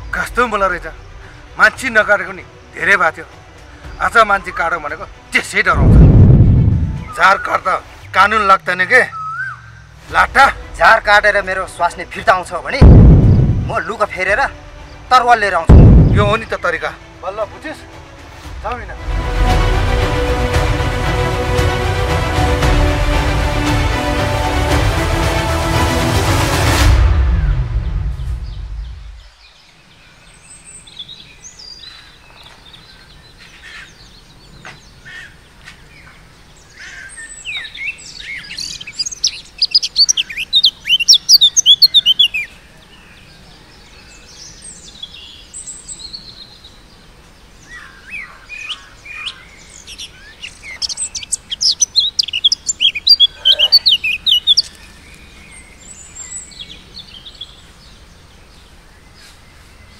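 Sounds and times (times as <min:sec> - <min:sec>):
songbirds chirping: 0:00.0 - 0:59.9
faint bird calls: 0:31.3 - 0:44.6, 0:47.6 - 0:56.4.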